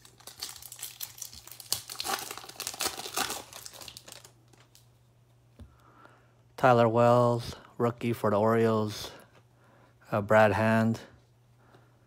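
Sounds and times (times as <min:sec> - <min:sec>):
foil wrapper tearing and crinkling: 0:00.0 - 0:04.8.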